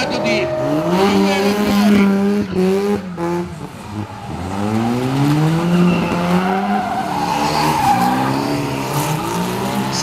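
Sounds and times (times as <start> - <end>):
car engine revving: 0.0 - 10.0
tyres squealing: 5.6 - 10.0.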